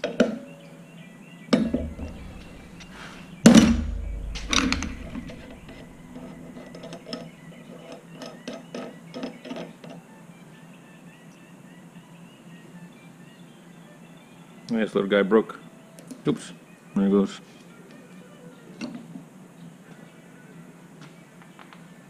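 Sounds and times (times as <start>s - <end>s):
heavy knocks: 1.6s - 7.3s.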